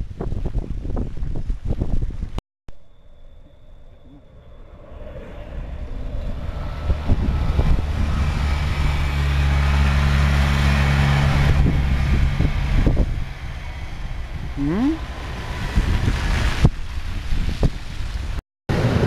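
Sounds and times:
light rail train passing: 2.8s - 17.3s
wheel-on-rail noise: 2.8s - 19.0s.

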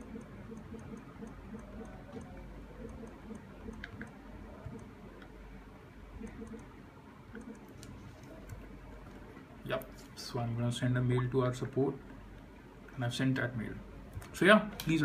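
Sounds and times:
touchscreen typing ticks: 0.0s - 5.4s, 6.2s - 8.6s.

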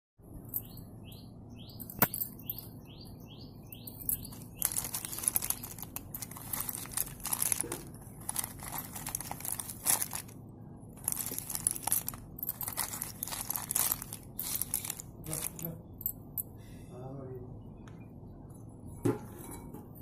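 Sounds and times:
small bird chirping: 0.4s - 7.5s
pencils clattering in plastic basket: 4.0s - 10.4s, 11.0s - 15.8s.

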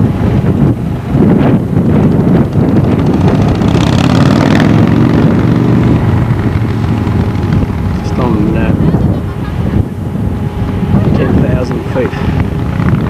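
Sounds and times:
wind rumbling on microphone: 0.0s - 13.0s
vehicle passing by: 2.6s - 13.0s.

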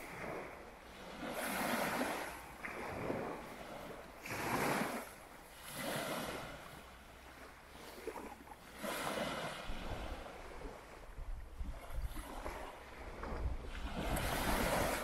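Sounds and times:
sea surf washing: 0.0s - 15.0s
wind buffeting microphone: 9.2s - 15.0s.

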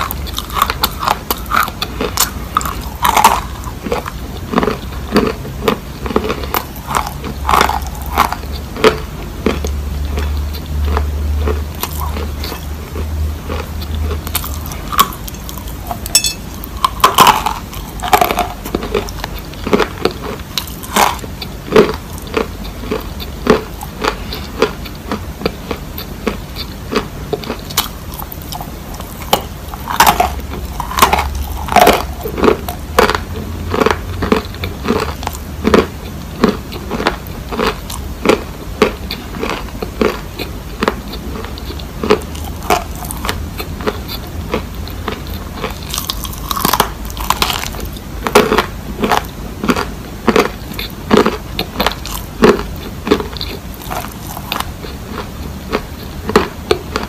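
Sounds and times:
crunching and chewing clay: 0.0s - 57.0s.

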